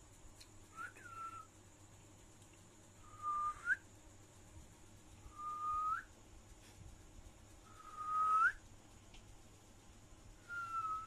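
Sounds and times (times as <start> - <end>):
whistles: 0.7 - 1.6, 3.0 - 3.9, 5.3 - 6.2, 7.6 - 8.7, 10.4 - 11.0.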